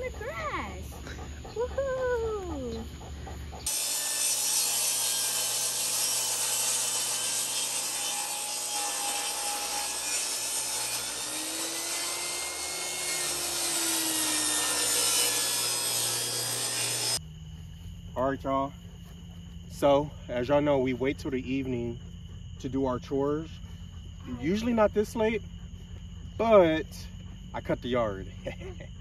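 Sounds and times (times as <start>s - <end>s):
table saw cutting wood: 3.6s - 17.2s.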